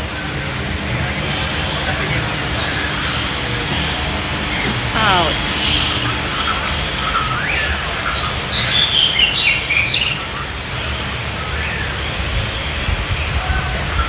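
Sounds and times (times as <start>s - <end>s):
low rushing noise: 0.0s - 14.0s
birds whistling calls: 4.4s - 14.0s.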